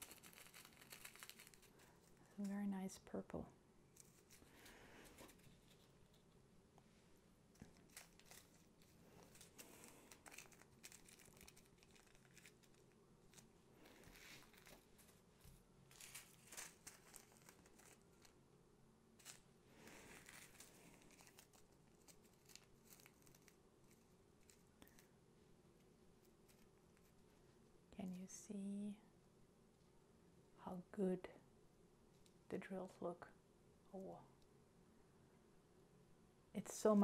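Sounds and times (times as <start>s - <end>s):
plastic bags crinkling: 0.0s - 2.5s, 7.5s - 18.4s, 19.2s - 25.1s.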